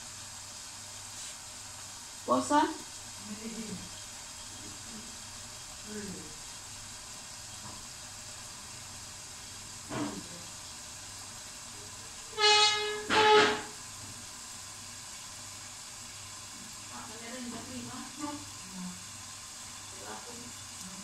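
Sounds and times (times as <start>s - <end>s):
vehicle horn honking: 12.3s - 13.7s.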